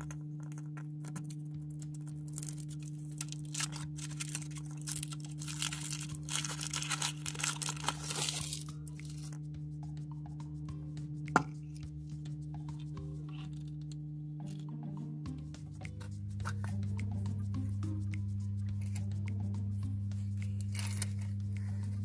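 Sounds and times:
foil wrapper crinkling: 0.0 - 9.4, 20.4 - 21.4.

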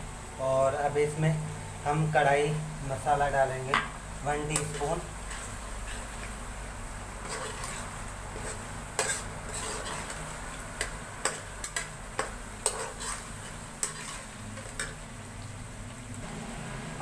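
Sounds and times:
gravy sizzling: 0.0 - 17.0
metal spatula scraping pan: 4.4 - 6.2, 7.2 - 15.0.

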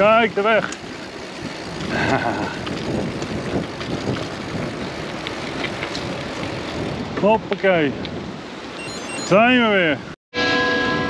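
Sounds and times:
bike clicks: 0.0 - 8.2
bike rattling: 0.0 - 8.7
bike tyre noise on rough track: 0.0 - 8.8.

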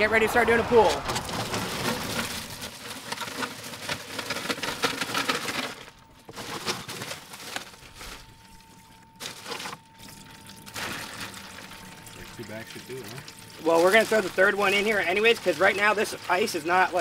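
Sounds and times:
ice cubes rattling into metal tank: 0.9 - 8.6, 9.2 - 17.0
plastic bag crinkling: 1.0 - 17.0
faint steady whine: 2.1 - 17.0.

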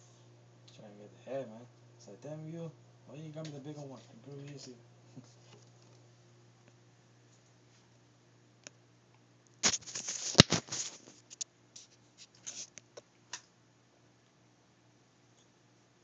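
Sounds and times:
rustling and crackling clicks: 9.4 - 13.5.

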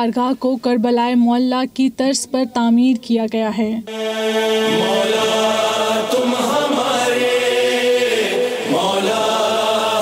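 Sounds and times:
voices chanting mourning chant: 3.9 - 10.0.

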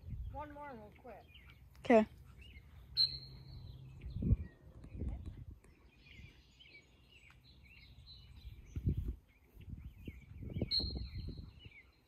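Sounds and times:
wind rumbling on microphone: 0.0 - 1.2, 3.4 - 6.6, 7.7 - 12.0
birds chirping and singing: 0.0 - 12.0.

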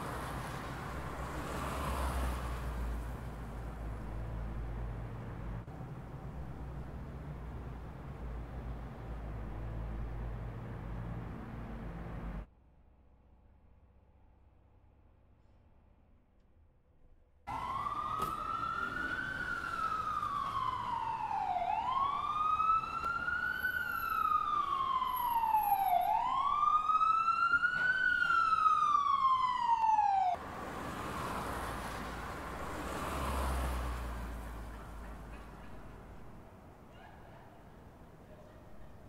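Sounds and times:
road noise hiss: 0.0 - 12.5, 30.4 - 39.0
police siren wailing: 17.5 - 30.4.

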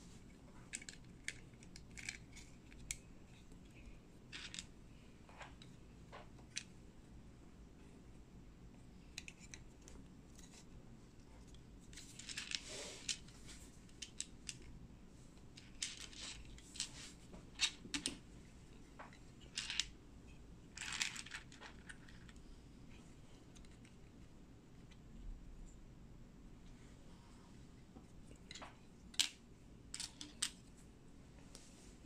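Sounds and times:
plastic bricks clicking and rattling: 0.7 - 3.1, 4.3 - 4.7, 15.6 - 16.8, 19.4 - 19.9, 20.8 - 22.4.

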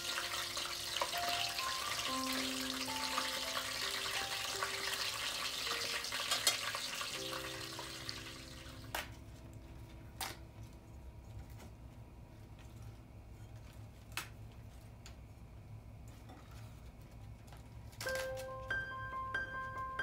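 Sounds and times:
hot oil sizzling: 0.0 - 9.1.

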